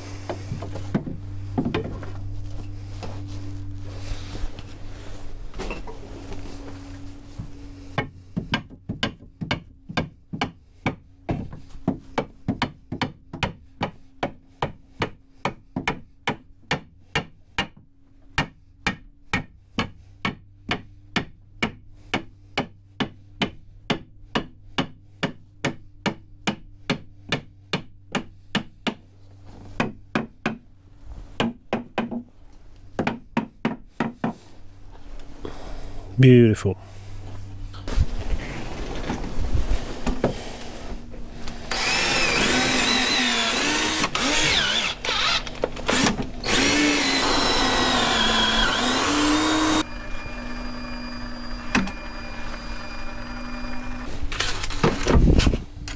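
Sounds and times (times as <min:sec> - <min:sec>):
low steady hum: 0:00.0 - 0:55.9
shuffling: 0:00.3 - 0:07.9.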